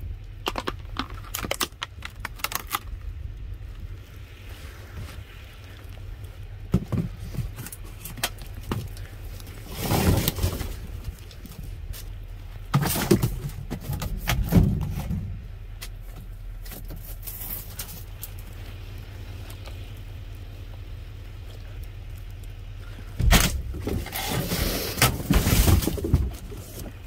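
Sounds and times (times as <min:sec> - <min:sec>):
steady low hum: 0:00.0 - 0:27.0
cardboard and plastic rustling: 0:00.4 - 0:03.0, 0:06.7 - 0:18.7, 0:23.0 - 0:27.0.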